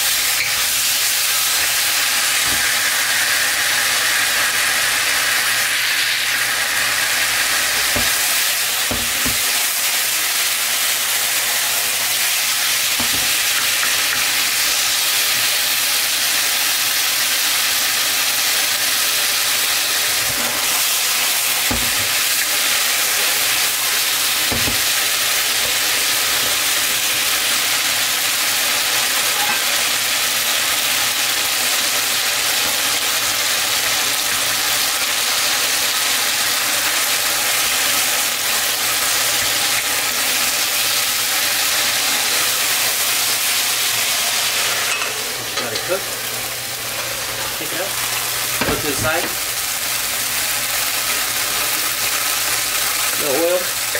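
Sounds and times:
chicken sizzling in a wok: 0:00.0 - 0:53.9
wooden spoon knocking: 0:07.8 - 0:08.3, 0:08.9 - 0:09.5, 0:13.0 - 0:13.5, 0:21.7 - 0:22.2, 0:24.5 - 0:24.9.

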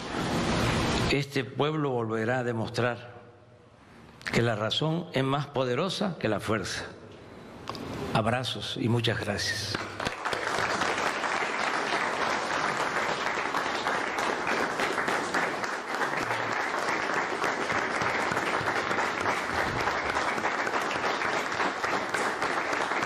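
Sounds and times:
audience applauding: 0:09.7 - 0:23.0.

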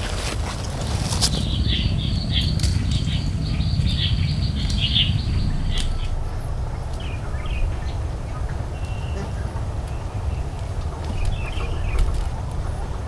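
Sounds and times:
birds chirping: 0:00.0 - 0:13.0
low rumble: 0:00.0 - 0:13.0
sharp clicks: 0:04.6 - 0:06.2.

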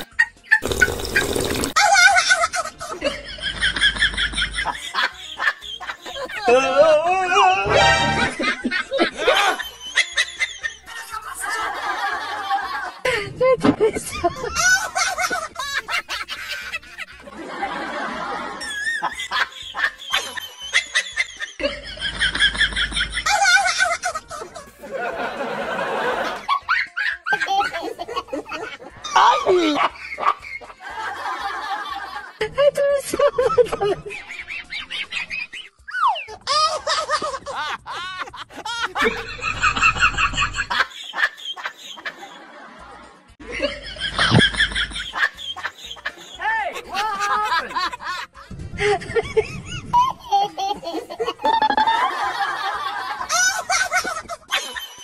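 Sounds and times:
people laughing and snickering: 0:00.0 - 0:55.0
person laughing: 0:13.0 - 0:17.1, 0:27.0 - 0:30.0, 0:43.5 - 0:52.4.

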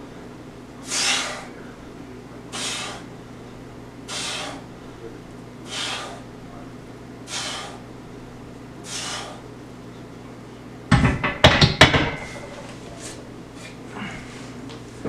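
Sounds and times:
hard exhales: 0:00.8 - 0:01.5, 0:02.6 - 0:03.1, 0:04.1 - 0:04.7, 0:05.7 - 0:06.2, 0:07.3 - 0:07.8, 0:08.8 - 0:09.4
barbell clanking onto metal rack: 0:10.9 - 0:12.5.

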